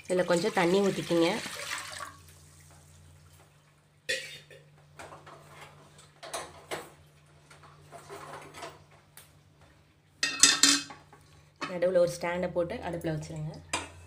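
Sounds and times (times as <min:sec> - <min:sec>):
kitchen things tapping and clicking: 0:04.1 - 0:09.1, 0:10.2 - 0:11.8, 0:13.4 - 0:14.0.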